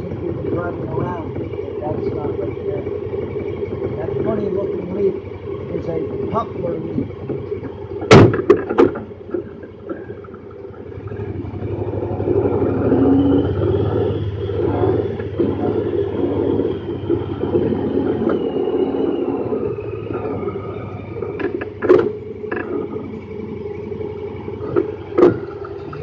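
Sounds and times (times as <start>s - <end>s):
high whine: 0.0s - 26.0s
off-road vehicle engine running: 0.0s - 26.0s
sharp knocks: 8.0s - 10.0s, 24.7s - 25.5s.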